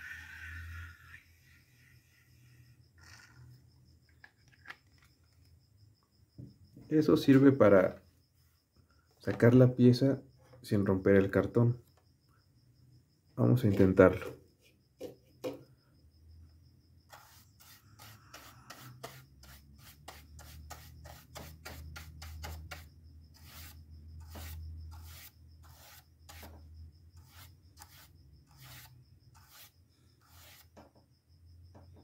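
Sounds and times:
paintbrush strokes on cardboard: 0:17.1 - 0:26.6, 0:27.2 - 0:30.8.

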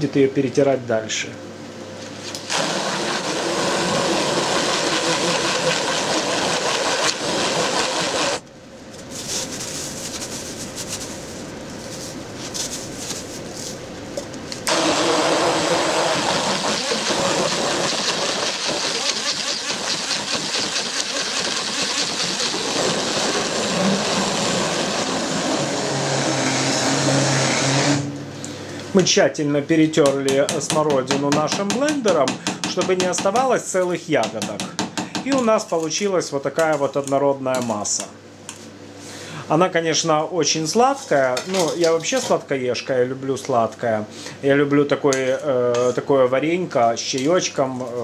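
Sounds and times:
immersion blender running in pot: 0:02.4 - 0:08.4, 0:14.7 - 0:28.1.

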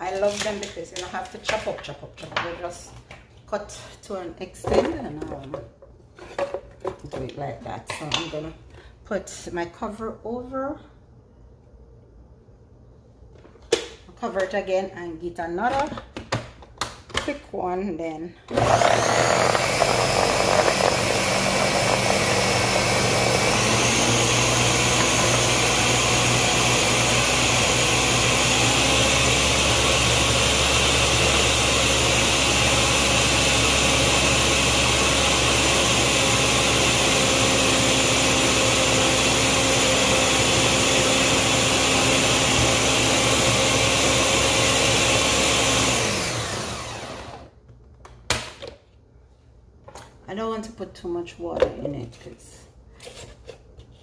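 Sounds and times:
blender motor chopping vegetables: 0:18.5 - 0:47.6.

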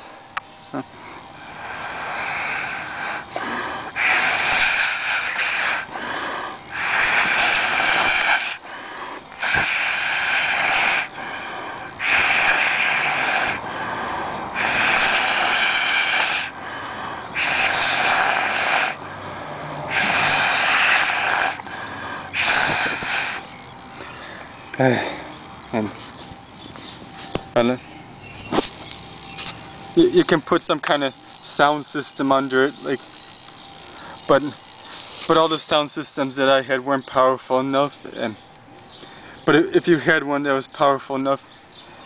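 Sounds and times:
blowing through straw into liquid: 0:04.0 - 0:05.9, 0:06.7 - 0:08.6, 0:09.4 - 0:11.1, 0:12.0 - 0:13.6, 0:14.6 - 0:16.5, 0:17.4 - 0:19.0, 0:19.9 - 0:21.6, 0:22.4 - 0:23.4.

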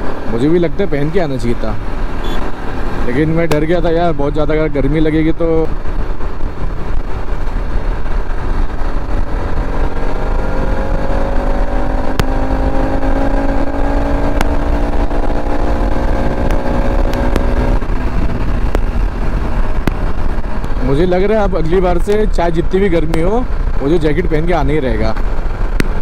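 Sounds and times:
wind rumble on microphone: 0:03.8 - 0:26.0
motorcycle engine pulling under throttle: 0:05.7 - 0:20.8.

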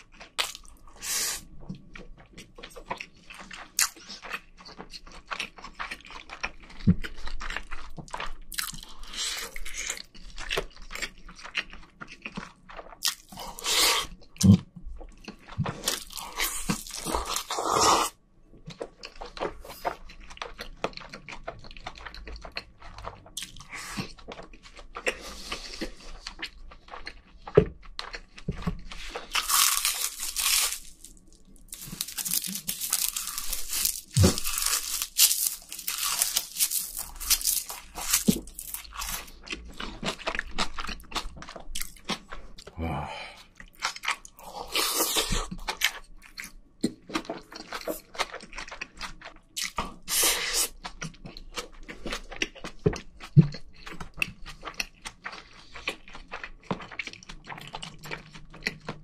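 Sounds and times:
person chewing and crunching food: 0:00.0 - 0:59.0.

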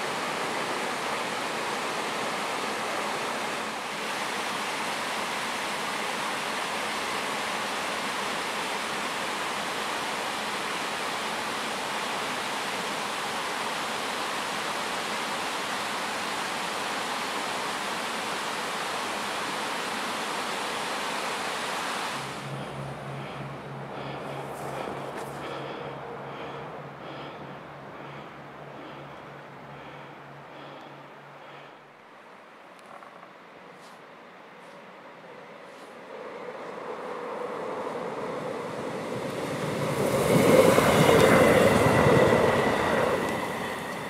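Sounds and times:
water rushing over a weir: 0:00.0 - 0:22.8.

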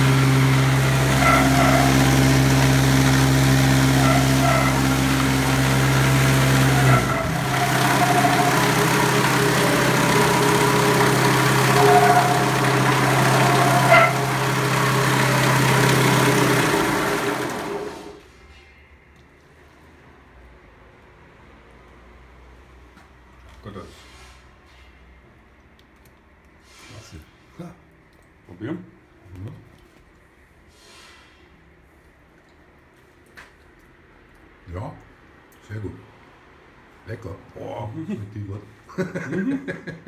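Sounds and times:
bowl cutter machine hum: 0:00.0 - 0:18.2.

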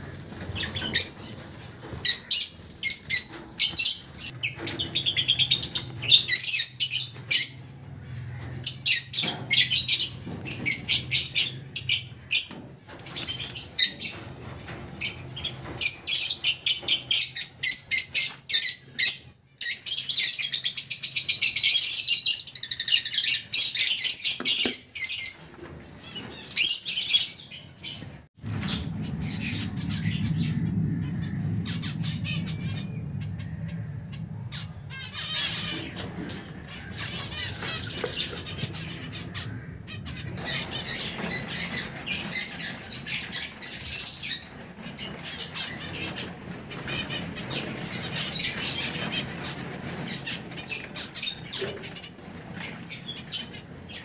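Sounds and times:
birds chirping: 0:00.0 - 0:54.0
steady low hum: 0:28.4 - 0:42.0.

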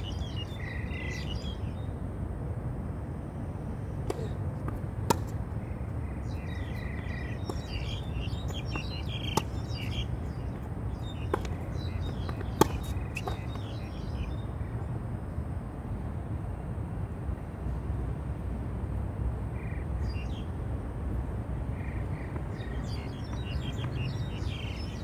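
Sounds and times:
birds chirping: 0:00.0 - 0:02.0, 0:03.8 - 0:14.9, 0:21.6 - 0:25.0
tennis ball hits: 0:04.0 - 0:05.5, 0:07.0 - 0:09.9, 0:11.2 - 0:13.7.

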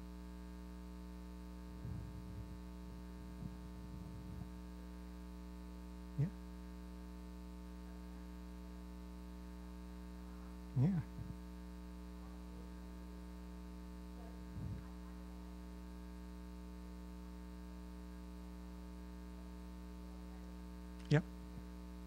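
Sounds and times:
electrical mains hum: 0:00.0 - 0:22.0
faint voice sounds: 0:06.1 - 0:06.4, 0:14.0 - 0:16.2.

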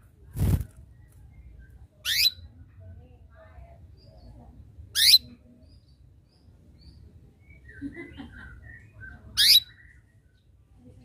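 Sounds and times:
soft bird twitters: 0:00.1 - 0:02.9, 0:03.9 - 0:10.8
canary chirp calls: 0:01.5 - 0:02.6, 0:04.0 - 0:10.4.

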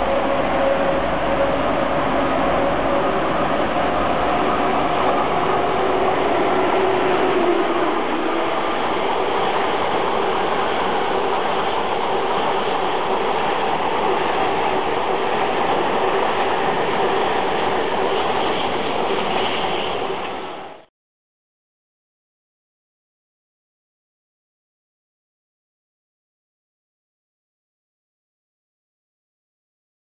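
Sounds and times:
train wheels on rails: 0:00.0 - 0:20.9.

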